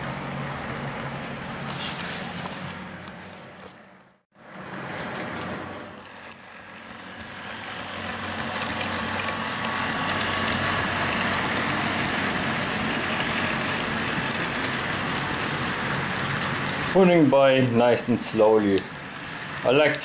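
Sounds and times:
wheels rumbling on rail: 0:00.0 - 0:20.0
model train motors humming: 0:04.6 - 0:20.0.

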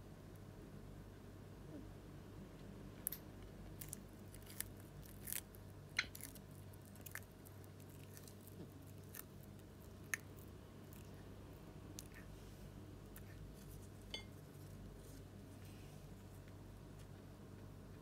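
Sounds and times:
tortoise chewing leaf crunches: 0:03.1 - 0:11.2.

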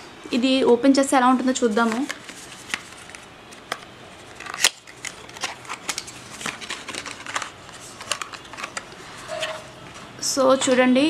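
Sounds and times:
cardboard snapping: 0:04.4 - 0:08.8.

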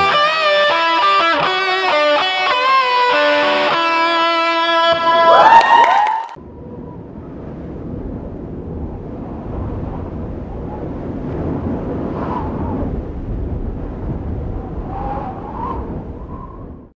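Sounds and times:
low rushing noise: 0:04.8 - 0:16.9
faint wavering whistling tones: 0:14.9 - 0:16.8.

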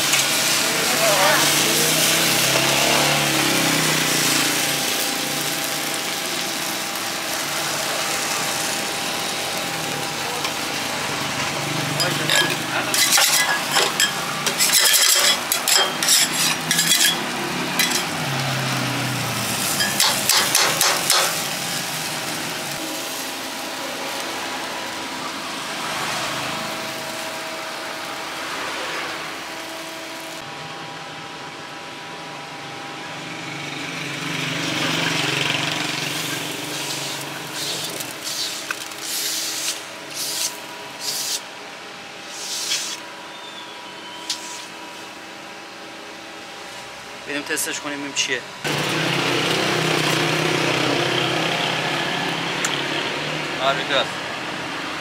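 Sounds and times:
food sizzling in a pan: 0:00.0 - 0:29.7, 0:34.3 - 0:41.5, 0:42.2 - 0:43.1, 0:44.2 - 0:45.2.

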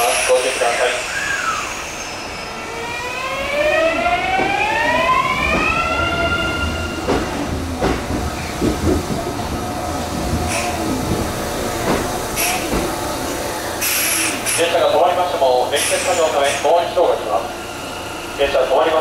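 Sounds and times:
train traction motors whining: 0:00.0 - 0:19.0
wheels knocking on rail joints: 0:07.0 - 0:13.0.

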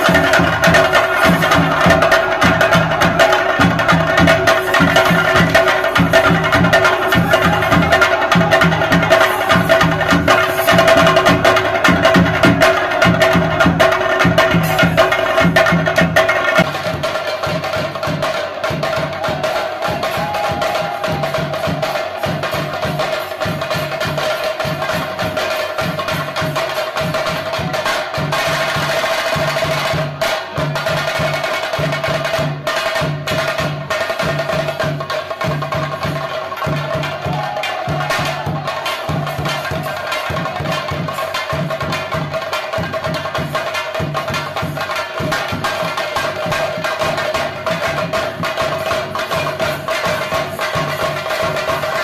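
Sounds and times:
drums beating steady rhythm: 0:00.0 - 0:52.0.

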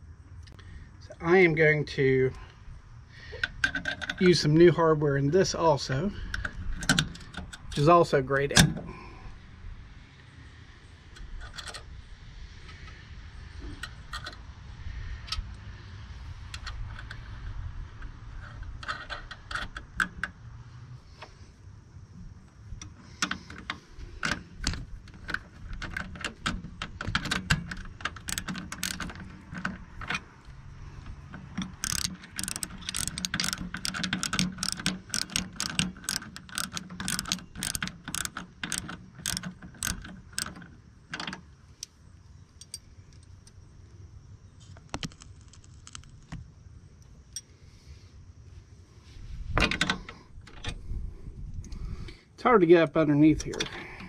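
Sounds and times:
ratcheting wrench clicking: 0:03.3 - 0:04.4, 0:22.8 - 0:30.3, 0:31.0 - 0:41.9.

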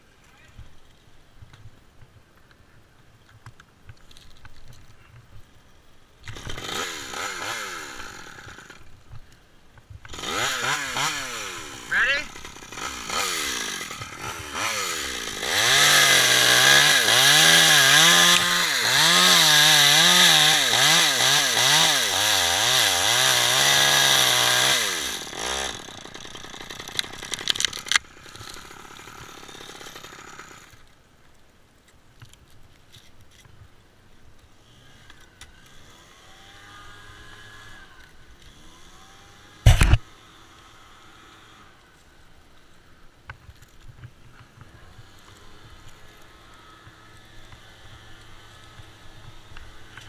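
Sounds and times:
chainsaw cutting wood: 0:06.2 - 0:09.3, 0:10.0 - 0:30.9, 0:34.6 - 0:42.1, 0:44.4 - 0:50.0.

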